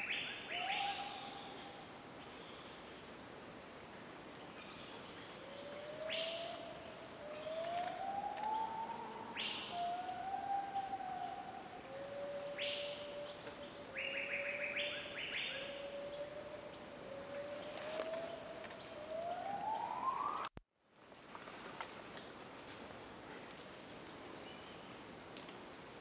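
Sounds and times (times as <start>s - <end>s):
insect buzz: 0.0s - 20.5s.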